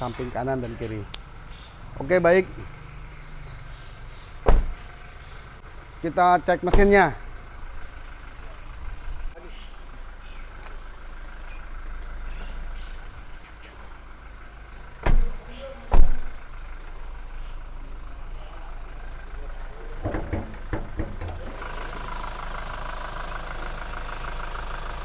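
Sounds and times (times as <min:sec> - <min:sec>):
diesel engine idling: 0:00.0 - 0:25.0
loud thumps: 0:04.5 - 0:04.8.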